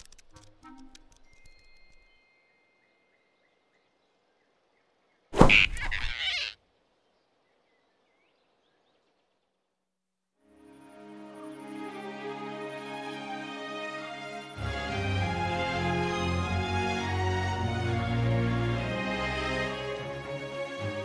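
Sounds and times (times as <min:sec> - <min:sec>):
soft music: 0:00.0 - 0:03.6, 0:10.4 - 0:21.0.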